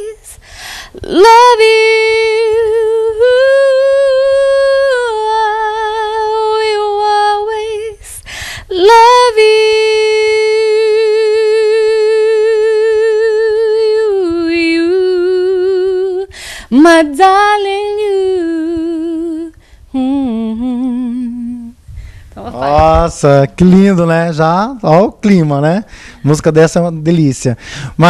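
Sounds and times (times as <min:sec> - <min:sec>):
woman singing unaccompanied: 0:00.0 - 0:00.4, 0:01.0 - 0:21.8.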